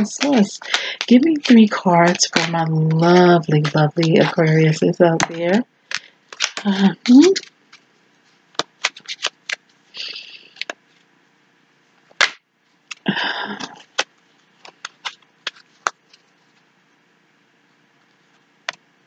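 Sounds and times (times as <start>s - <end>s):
cards snapping: 0.0s - 7.8s, 8.6s - 9.6s, 10.5s - 10.8s, 12.1s - 16.2s
cards riffling: 0.0s - 7.9s, 8.6s - 9.6s, 10.2s - 10.8s, 12.1s - 16.3s.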